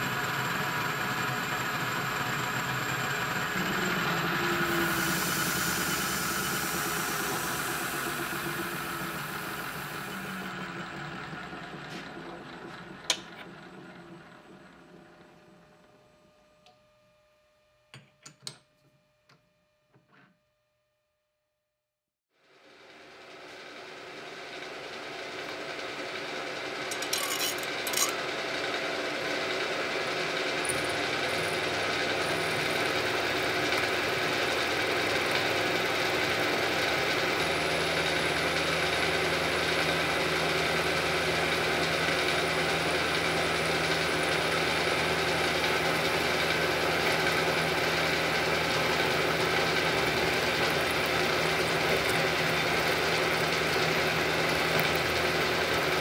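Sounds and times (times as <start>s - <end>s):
milling machine cutting steel: 3.2s - 10.7s, 26.7s - 28.7s, 40.4s - 56.0s.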